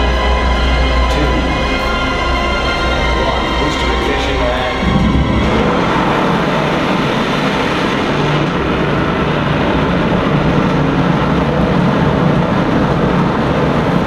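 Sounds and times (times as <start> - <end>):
dense roar with deep bass: 0.0 - 14.0.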